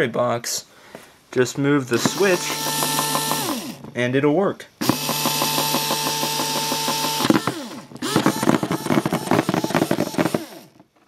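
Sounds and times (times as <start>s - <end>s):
electric motor whining: 1.9s - 4.0s, 4.8s - 10.8s.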